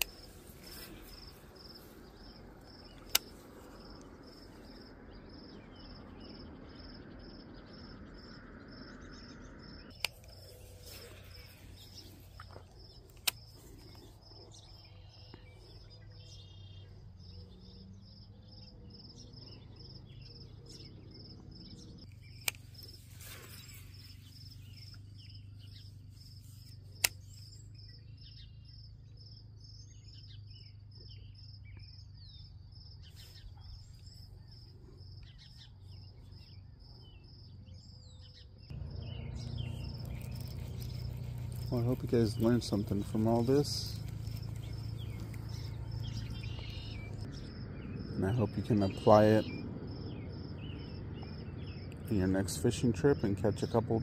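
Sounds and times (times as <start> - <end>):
sharp clicks: 0.0 - 0.4, 2.7 - 4.5, 9.9 - 10.5, 11.3 - 14.0, 22.0 - 23.6, 26.9 - 27.5, 39.4 - 47.3
cricket chirping: 0.0 - 52.0
bird chirps: 0.0 - 54.0.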